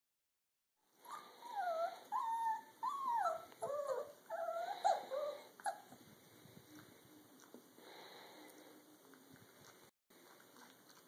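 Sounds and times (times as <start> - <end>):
puppies whimpering and whining: 1.0 - 6.0.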